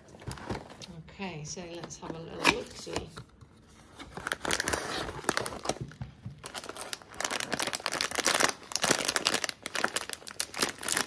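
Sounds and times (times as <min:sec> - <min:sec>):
foil snack pouch crinkling: 0:04.2 - 0:11.0.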